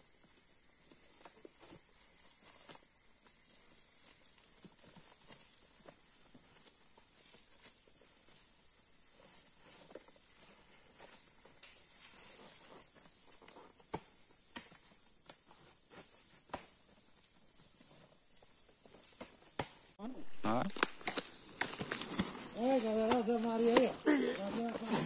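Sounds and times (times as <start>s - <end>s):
rainforest insects chorus: 0.0s - 25.0s
sacks knocking and rustling: 20.5s - 25.0s.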